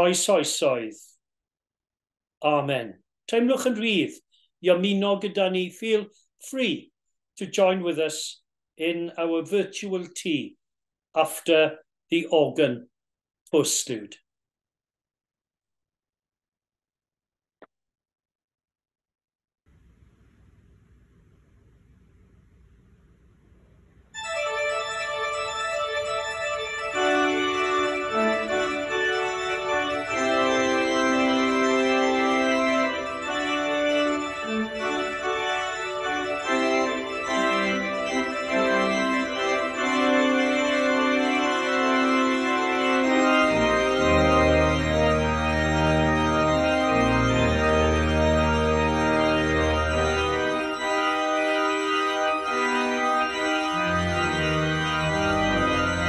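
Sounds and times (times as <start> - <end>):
pipe organ chords: 19.9 - 56.0
deep organ pedal bass notes: 22.4 - 56.0.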